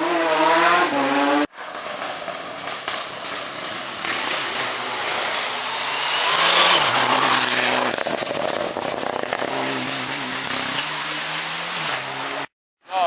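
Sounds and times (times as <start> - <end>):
rally car engines accelerating: 3.3 - 12.5.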